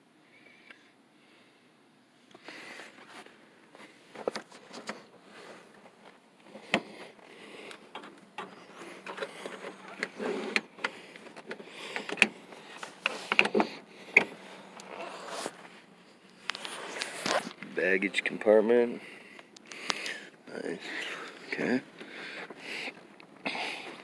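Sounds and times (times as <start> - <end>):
phone handling noise: 7.7 - 15.6
rustling: 14.2 - 17.8.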